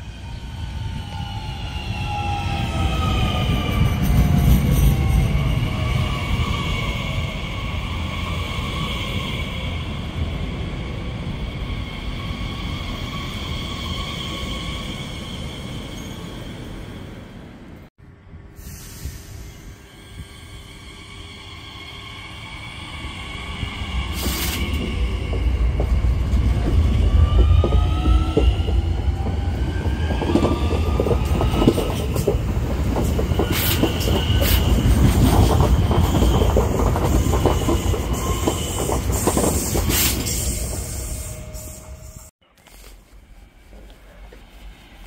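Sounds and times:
train rumble: 0:18.5 - 0:42.3.

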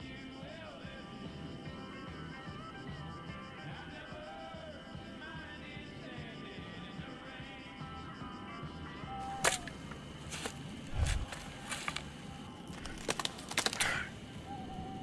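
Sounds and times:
sharp clicks and cracks: 0:12.7 - 0:14.1.

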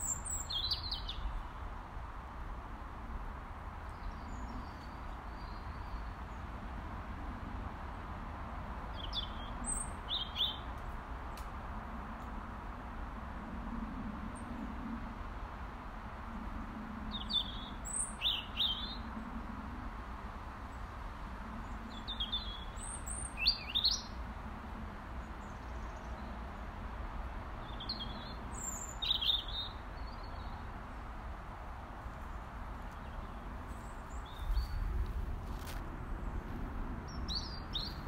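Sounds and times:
robin calling: 0:21.9 - 0:24.2, 0:27.6 - 0:30.6.

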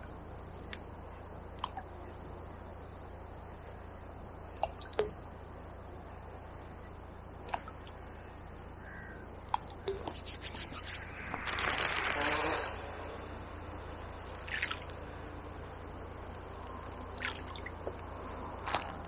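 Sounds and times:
harsh rustling: 0:10.1 - 0:12.8.

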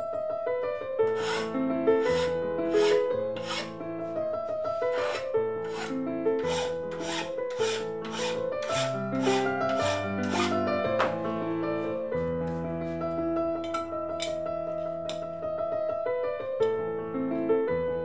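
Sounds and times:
background piano music: 0:00.0 - 0:18.0
hand file rasping on metal: 0:01.1 - 0:03.8, 0:04.8 - 0:10.6.

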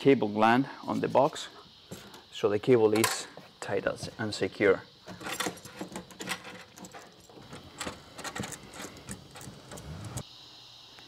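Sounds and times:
cable scraping against metal panel: 0:05.1 - 0:10.2.

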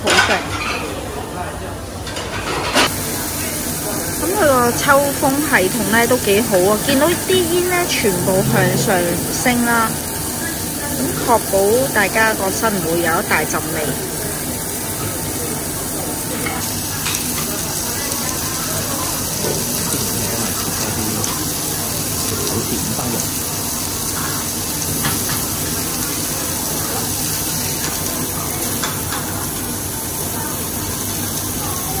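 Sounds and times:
meat sizzling on grill plate: 0:02.8 - 0:32.0.

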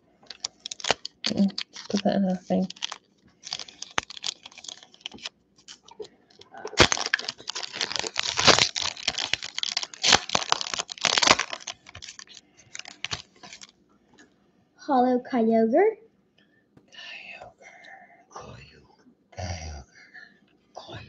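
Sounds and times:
foil wrapper crinkling: 0:00.3 - 0:13.7
foil wrapper tearing open: 0:00.3 - 0:13.7.

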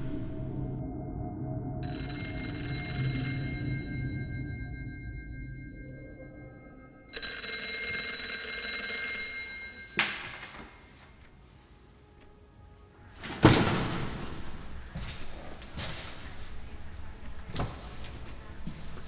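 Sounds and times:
phone ringtone chime tones: 0:01.8 - 0:11.0
loud thump: 0:13.3 - 0:14.4.

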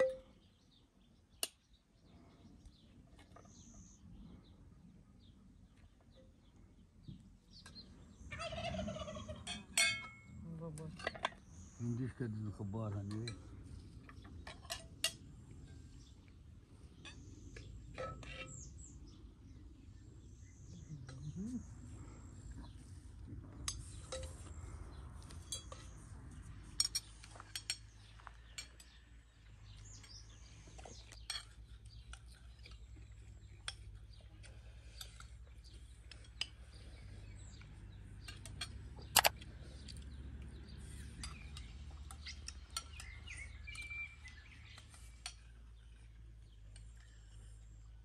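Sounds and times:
birds chirping: 0:00.0 - 0:48.0
spoons clinking on plates: 0:09.4 - 0:10.3.

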